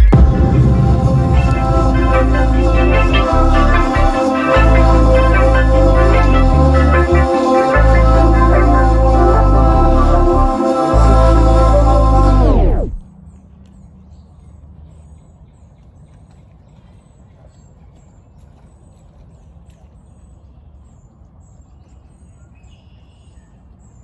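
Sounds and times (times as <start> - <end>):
electronic organ chord: 0.0 - 13.0
steady low rumble: 0.0 - 13.1.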